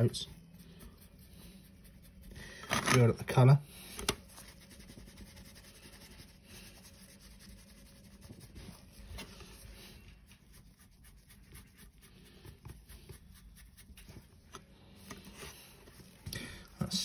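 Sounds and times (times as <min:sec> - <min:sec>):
brush scratching on metal: 0:00.0 - 0:03.4, 0:04.2 - 0:14.5.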